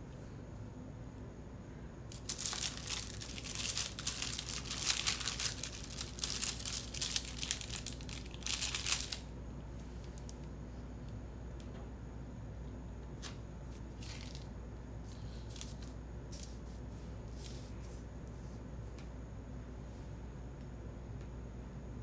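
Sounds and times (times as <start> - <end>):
paper sticker sheets rustling: 2.1 - 10.4, 13.2 - 14.5, 15.1 - 18.0.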